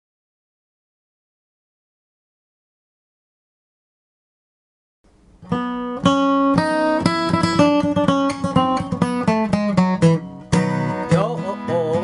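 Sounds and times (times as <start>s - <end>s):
acoustic guitar picking: 5.3s - 12.0s.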